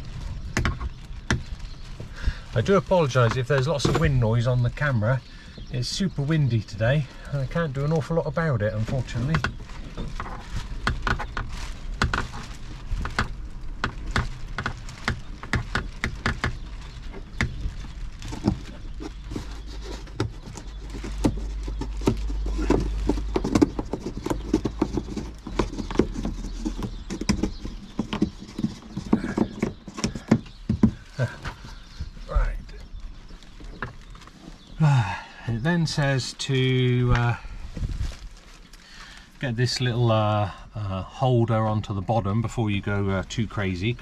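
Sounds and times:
wind buffeting microphone: 0.0 - 7.6, 8.6 - 34.8, 37.0 - 38.4.

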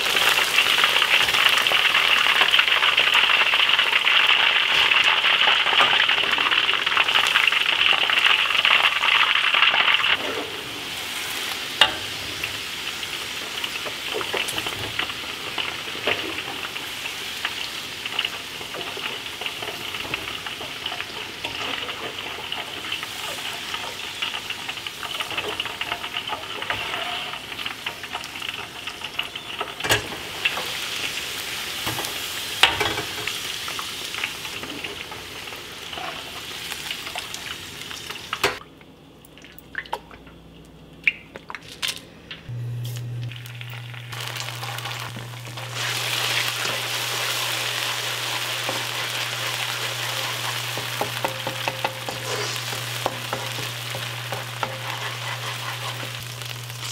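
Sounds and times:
aromatics sizzling in a wok: 0.0 - 38.6, 42.5 - 56.9
food deep-frying in oil: 0.0 - 38.6, 42.5 - 56.9
spatula stirring in a wok: 44.2 - 56.9.

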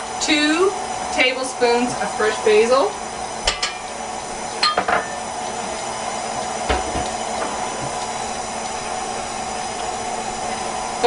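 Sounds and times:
stand mixer motor whirring: 0.0 - 11.0
mixer knock: 6.6 - 8.0.

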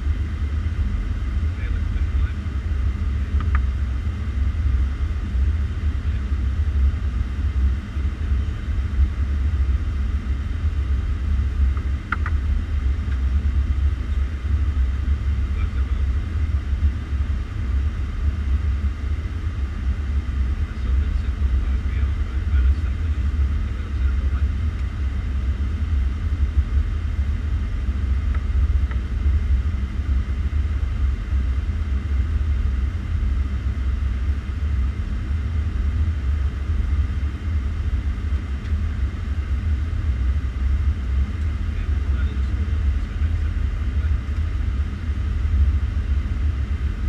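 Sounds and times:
cockpit airflow and engine rumble: 0.0 - 47.0.

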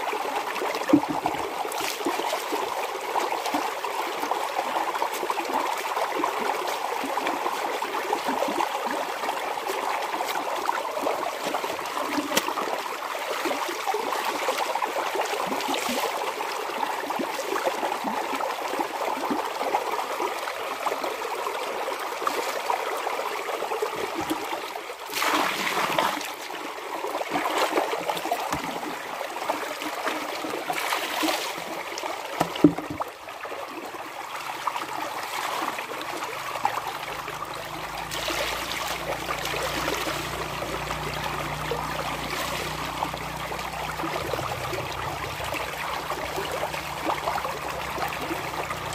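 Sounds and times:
water splashing into plastic bucket: 0.7 - 3.6, 9.2 - 16.2, 25.1 - 26.5, 27.3 - 33.3, 38.0 - 48.9.

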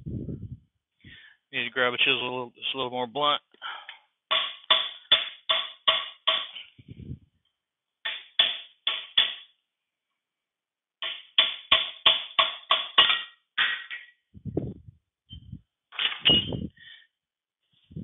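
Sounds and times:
hammer striking chisel on metal: 4.3 - 6.7, 8.0 - 9.5, 11.0 - 14.1.

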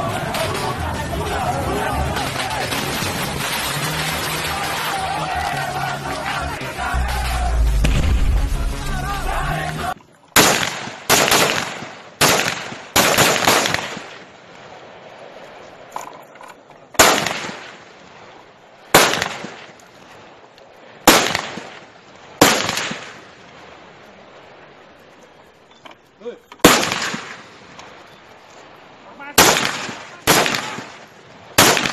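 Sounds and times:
background music: 0.0 - 10.0
echoing rifle shots: 10.4 - 14.3, 17.0 - 17.8, 18.9 - 19.7, 21.1 - 21.8, 22.4 - 23.2, 26.6 - 27.5, 29.4 - 31.9.

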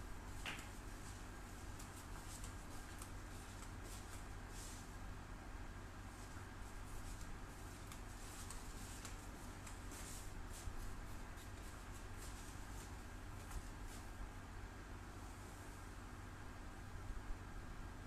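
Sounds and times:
low electrical hum: 0.0 - 18.0
faint ticks and rustles: 0.3 - 4.8, 6.1 - 14.2.

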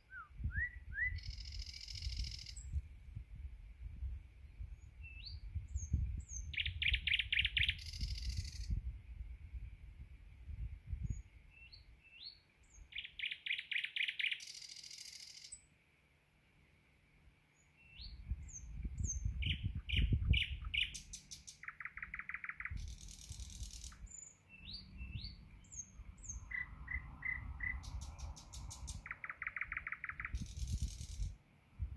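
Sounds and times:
nightingale singing: 0.0 - 2.8, 4.4 - 8.9, 10.9 - 15.7, 17.5 - 31.9.

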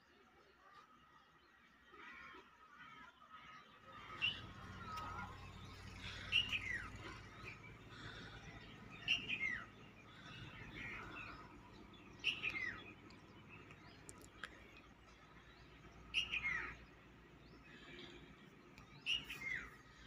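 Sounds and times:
faint bird chirps: 4.0 - 20.0.

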